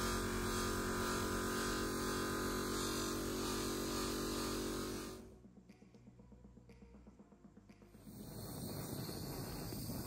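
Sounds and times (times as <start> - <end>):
buffing wheel motor humming: 0.0 - 5.3.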